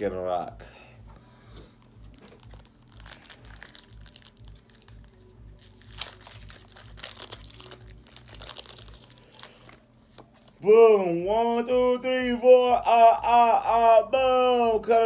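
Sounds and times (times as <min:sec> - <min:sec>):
foil wrapper crinkling: 0:02.0 - 0:09.8.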